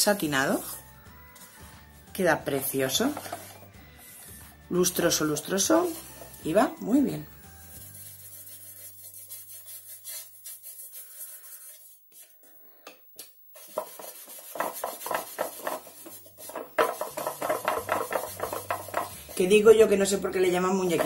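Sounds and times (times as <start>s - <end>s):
cloth rubbing on wood: 13.6s - 19.7s.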